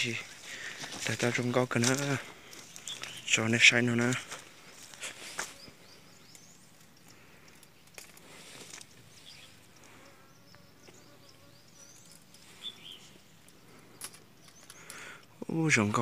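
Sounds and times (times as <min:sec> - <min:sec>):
flying insect buzzing: 0:04.5 - 0:15.1.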